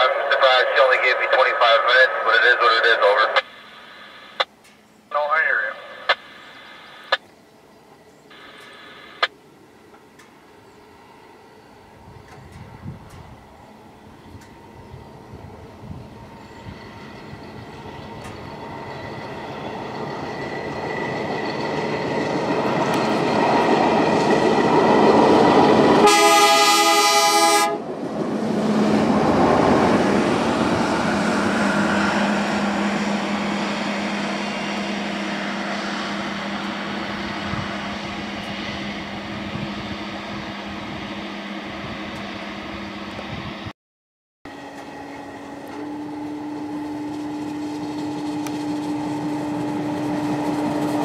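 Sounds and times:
low engine drone: 0.0s - 43.7s
rail machine engine passing: 0.0s - 43.7s, 44.5s - 51.0s
horn blast: 26.0s - 27.8s.

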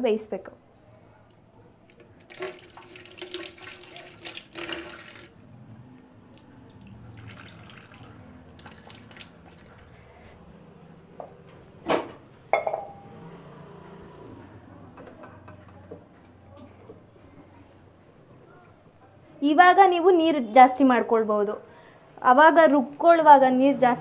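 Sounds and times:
water pouring and splashing: 2.2s - 5.4s, 6.3s - 9.9s.

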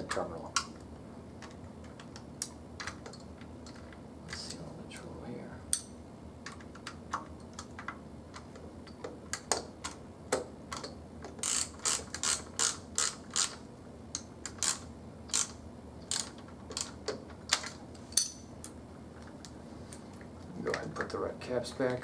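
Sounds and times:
ratchet wrench clicking: 11.4s - 13.6s, 14.5s - 16.9s.

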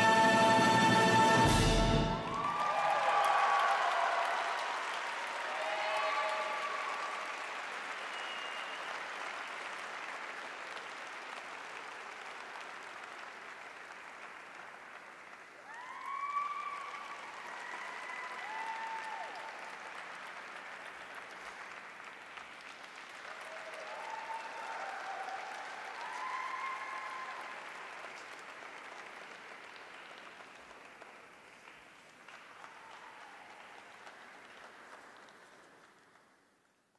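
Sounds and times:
spectators applauding: 0.0s - 36.9s
individual voices cheering: 2.1s - 4.8s, 5.4s - 7.1s, 15.6s - 19.6s, 23.4s - 27.6s.

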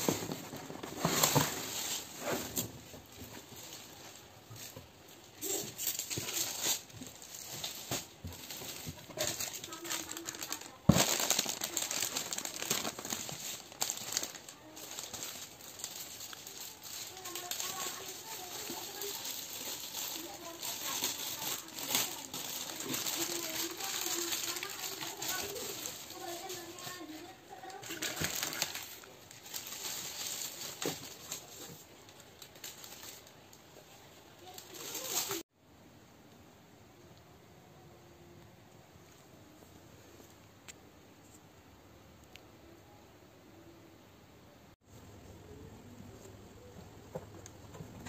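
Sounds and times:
plastic bags crinkling: 0.0s - 33.6s, 34.4s - 35.4s
loud plastic crackle: 0.0s - 33.7s, 34.3s - 35.5s.

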